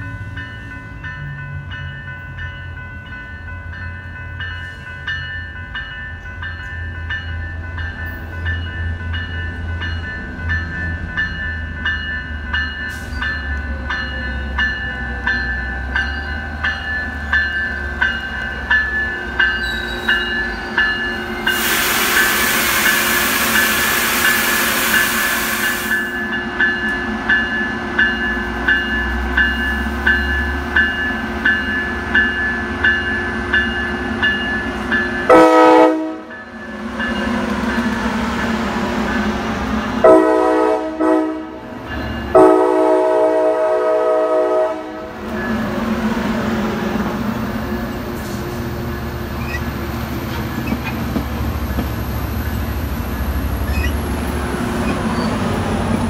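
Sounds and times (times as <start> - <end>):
level-crossing warning bells: 0.0 - 56.0
train rumbling: 0.0 - 56.0
air hiss from train: 21.4 - 26.2.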